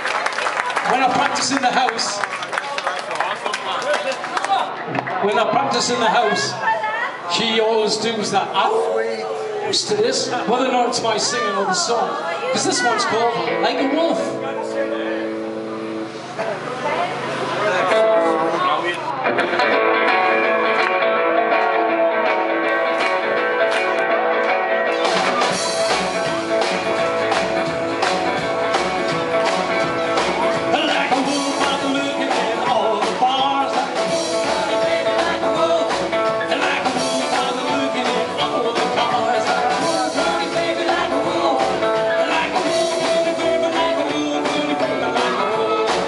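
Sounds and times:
guitar: 4.7 - 46.0
drum kit: 19.3 - 46.0
upright double bass: 19.3 - 46.0.

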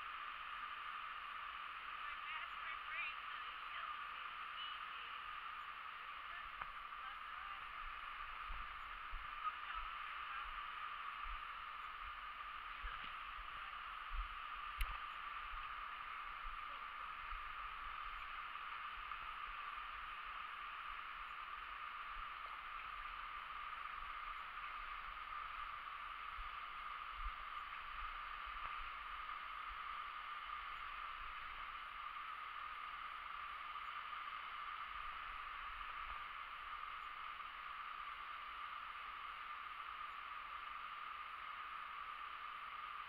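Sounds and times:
low microphone rumbles: 5.4 - 31.8.

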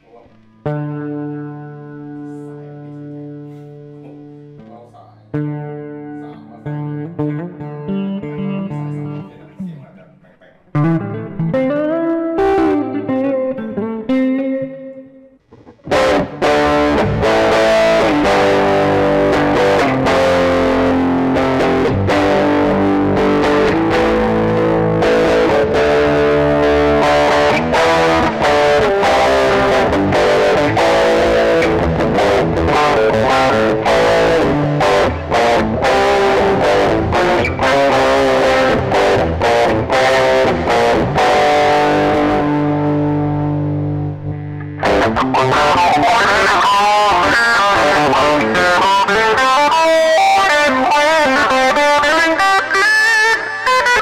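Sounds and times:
distorted electric guitar: 0.0 - 54.0.

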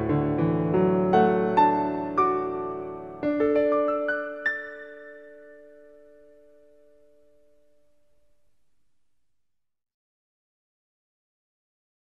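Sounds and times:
soft piano music: 0.0 - 8.6.

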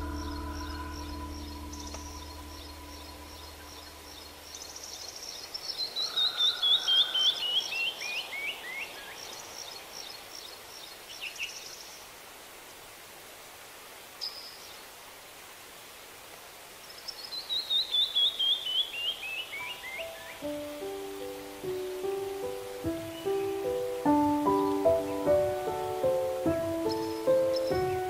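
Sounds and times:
high chirps: 0.0 - 5.2, 19.6 - 28.0
songbird singing: 0.0 - 12.2, 14.2 - 15.0, 16.8 - 28.0
faint steady hiss: 0.0 - 28.0.

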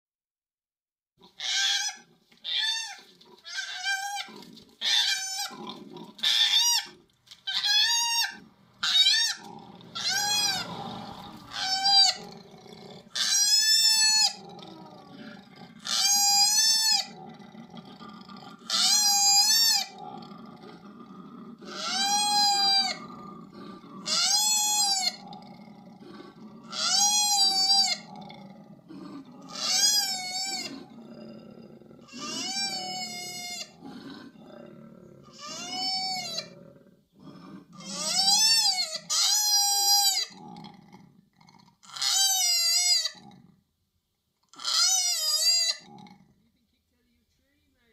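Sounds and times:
koala wailing cries: 7.5 - 10.8, 11.4 - 12.3, 15.8 - 17.2, 18.7 - 20.0, 21.7 - 23.0, 24.0 - 25.2, 26.7 - 28.1, 29.5 - 30.8, 32.1 - 33.8, 35.3 - 36.5, 37.8 - 40.4.

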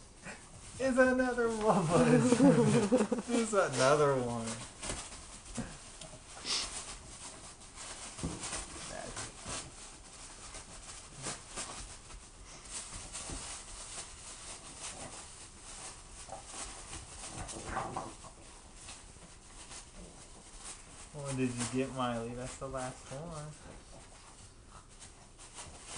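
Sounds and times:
wrapping paper rustling: 0.5 - 25.9
dog sniffing and snorting: 5.3 - 21.2.

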